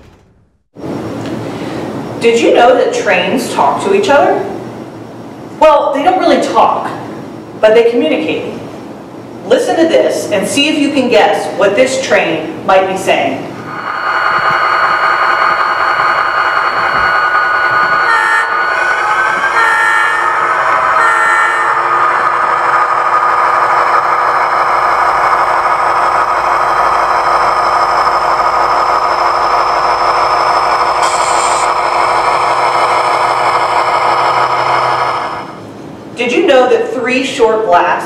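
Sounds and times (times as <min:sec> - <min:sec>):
train horn chord: 0:19.5 - 0:20.4, 0:21.0 - 0:21.8.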